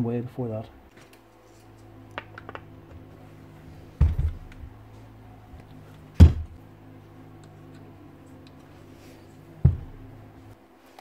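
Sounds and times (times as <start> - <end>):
faint steady hum: 0.0 - 11.0
dull thump: 3.9 - 4.8, 6.1 - 6.6, 9.6 - 10.1.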